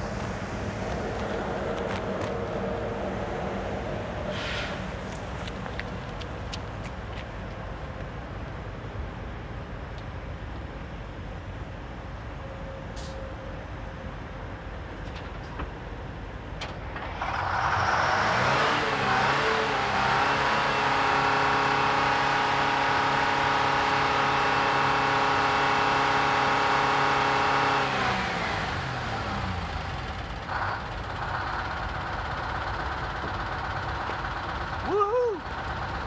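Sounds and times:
bus engine revving and idling: 0.0s - 15.1s, 15.8s - 36.0s.

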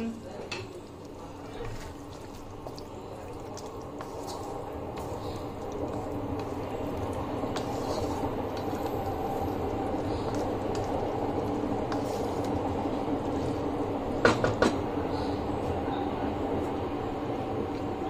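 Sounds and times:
steady hum: 0.0s - 18.0s
sauce simmering in a wok: 0.1s - 18.0s
wooden spatula stirring: 0.8s - 13.7s.

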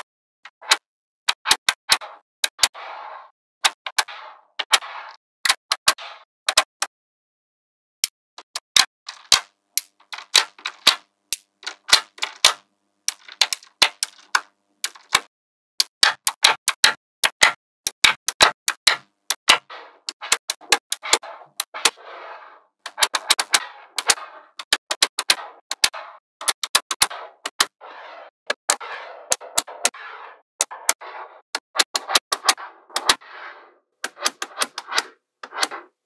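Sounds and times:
magnetic balls clicking together: 8.4s - 22.0s
magnetic balls rattling: 9.1s - 15.3s.

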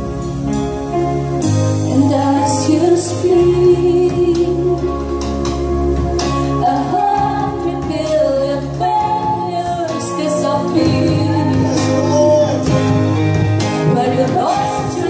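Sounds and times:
live band playing: 0.0s - 15.0s
woman singing: 1.8s - 5.1s, 6.6s - 12.4s, 13.8s - 15.0s.

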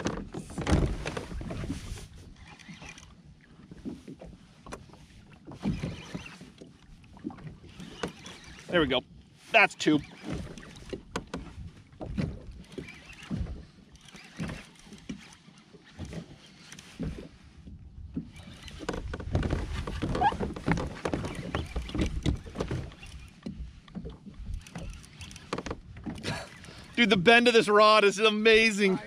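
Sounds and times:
water lapping around hull: 0.0s - 29.0s
fishing reel knocks and rustles: 9.8s - 17.3s, 18.1s - 26.7s.

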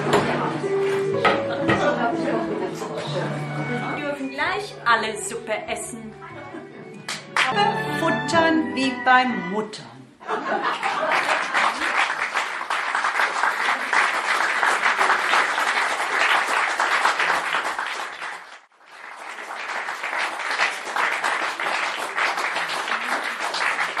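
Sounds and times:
audience applauding: 7.0s - 7.7s, 10.7s - 24.0s.

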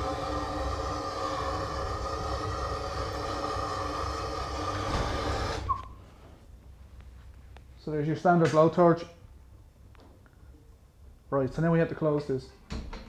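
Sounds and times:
blowtorch hissing: 0.0s - 5.8s.

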